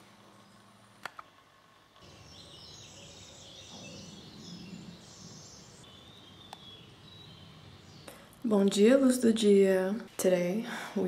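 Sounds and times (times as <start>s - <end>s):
birds chirping: 2.0s - 9.9s.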